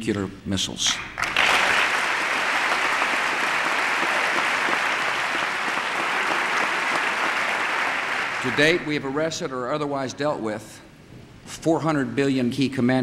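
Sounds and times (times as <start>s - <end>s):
large audience applauding: 1.2s - 9.2s.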